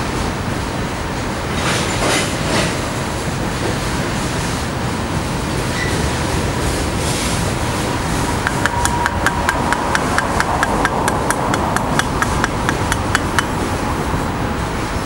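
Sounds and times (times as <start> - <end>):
train cars rumbling past: 0.0 - 15.0
rapid regular clicking: 8.6 - 13.5.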